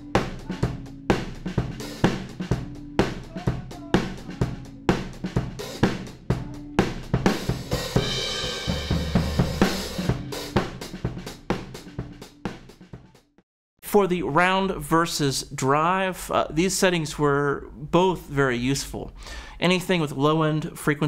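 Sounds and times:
drum kit groove: 0.0s - 13.2s.

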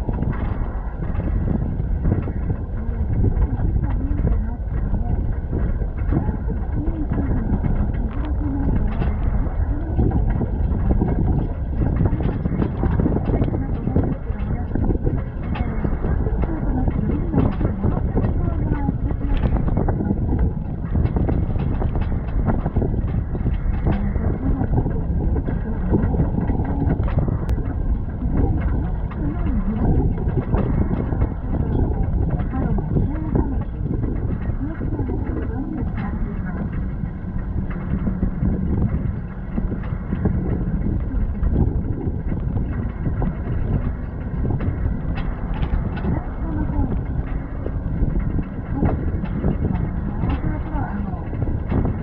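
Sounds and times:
bus running on road: 0.0s - 52.0s
wind buffeting microphone: 0.0s - 52.0s.

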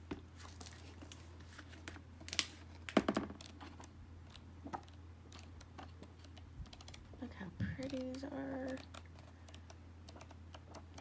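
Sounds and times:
book pages flipping: 0.0s - 7.0s
low steady hum: 0.0s - 11.0s.

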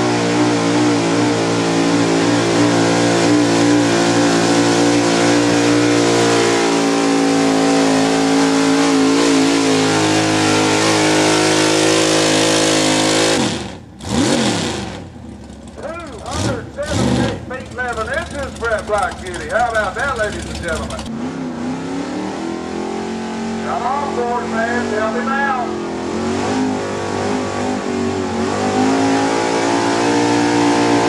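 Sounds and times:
truck engine revving under load: 0.0s - 31.0s.

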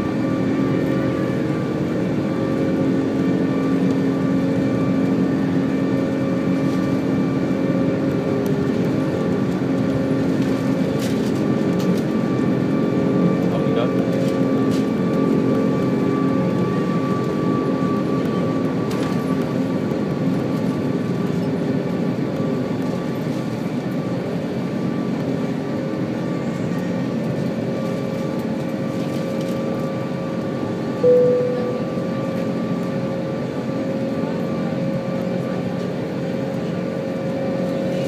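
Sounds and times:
jet engines rumbling in cabin: 0.0s - 38.0s
short loud single tone: 31.0s - 32.5s.

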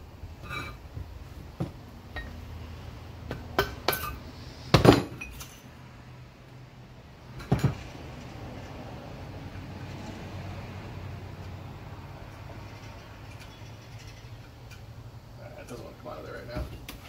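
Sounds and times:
loose metal parts clinking: 12.4s - 14.9s.

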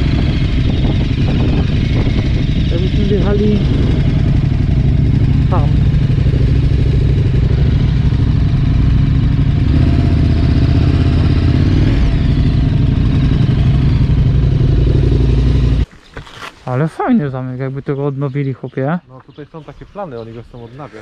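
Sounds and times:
motorcycle engine running: 0.0s - 15.9s.

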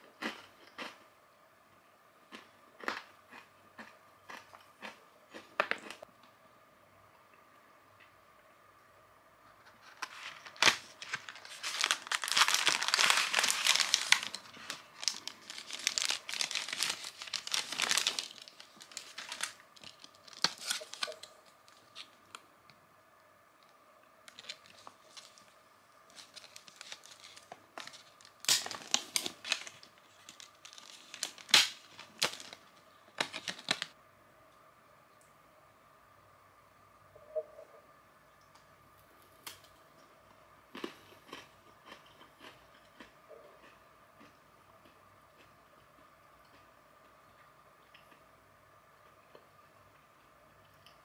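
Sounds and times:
plastic packaging crinkling and tearing: 9.6s - 22.2s, 24.3s - 25.5s, 26.1s - 34.0s.

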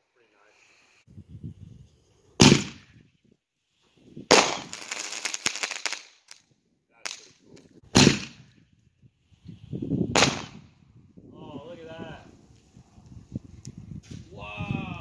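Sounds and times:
mortar launch bang: 2.4s - 3.0s, 7.9s - 8.5s, 10.1s - 10.6s
firework crackling: 4.3s - 6.4s
firework shell bursting: 4.3s - 6.4s.

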